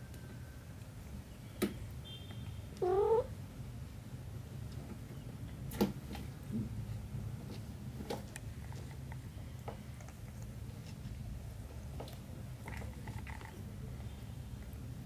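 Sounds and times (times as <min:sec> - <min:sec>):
cat meowing: 0:02.8 - 0:03.3.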